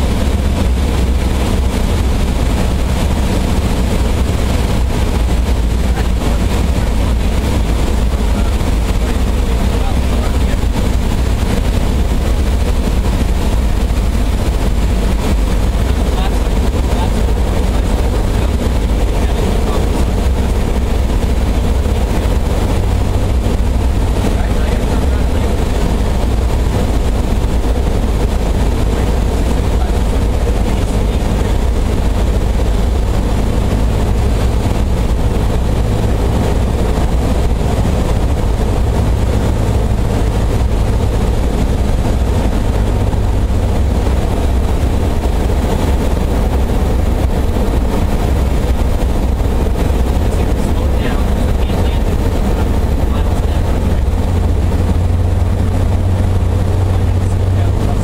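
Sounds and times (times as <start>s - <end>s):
propeller airplane engine drone: 0.0s - 58.0s.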